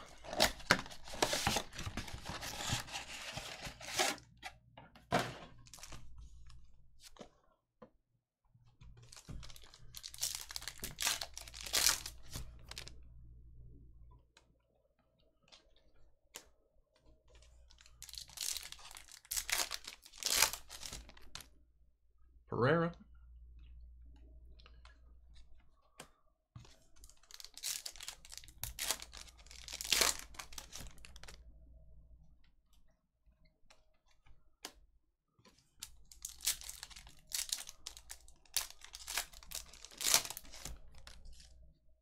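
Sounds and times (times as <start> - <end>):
foil wrappers crinkling and tearing: 0.0 - 4.2, 9.1 - 12.8, 17.7 - 21.4, 27.0 - 31.4, 36.1 - 41.5.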